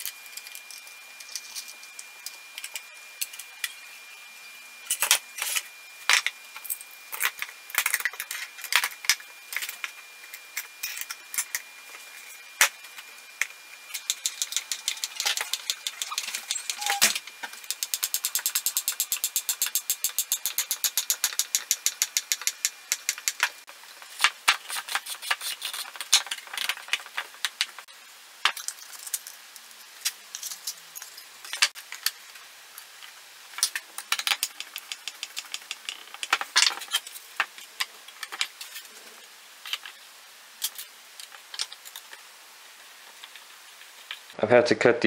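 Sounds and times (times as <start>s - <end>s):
wooden parts and screws knocking: 13.9s - 23.6s, 33.6s - 38.5s.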